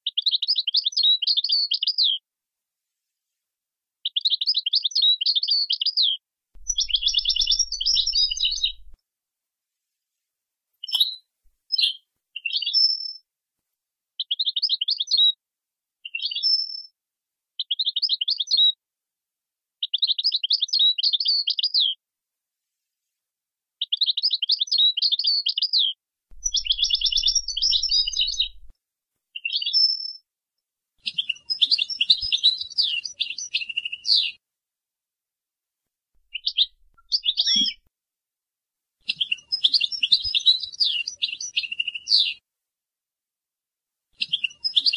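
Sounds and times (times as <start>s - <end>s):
goldfinch twittering trills: 6.6s - 9.0s, 26.4s - 28.7s, 36.3s - 37.8s.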